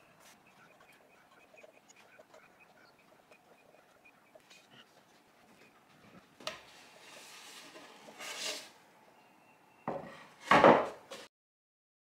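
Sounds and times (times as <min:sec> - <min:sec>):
wooden boards rubbing: 0:06.4 - 0:08.8
wooden boards knocking: 0:09.9 - 0:11.0.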